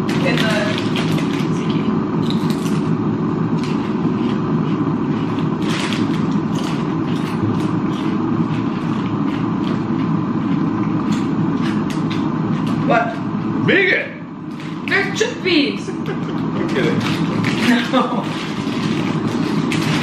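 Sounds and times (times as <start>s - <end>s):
plastic snack bag crinkling: 0.0s - 2.9s, 3.5s - 9.8s, 16.6s - 20.0s
low background hum: 0.0s - 20.0s
crisps crunching: 3.5s - 12.9s, 16.6s - 20.0s.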